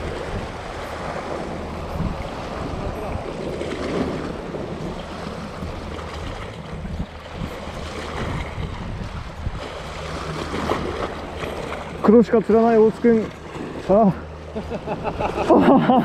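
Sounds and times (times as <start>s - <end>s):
wind on microphone: 0.0s - 11.8s
low steady hum: 0.0s - 16.0s
water washing around boat: 0.0s - 16.0s.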